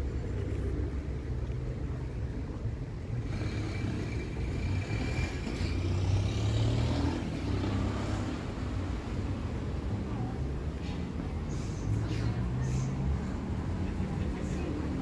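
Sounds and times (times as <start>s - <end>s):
low traffic rumble: 0.0s - 15.0s
vehicle passing by: 3.3s - 10.3s.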